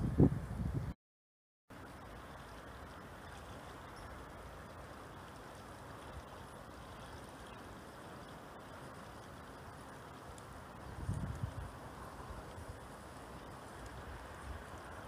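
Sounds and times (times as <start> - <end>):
wind over lake: 0.0 - 1.0, 1.7 - 15.0
water lapping and rippling: 1.7 - 15.0.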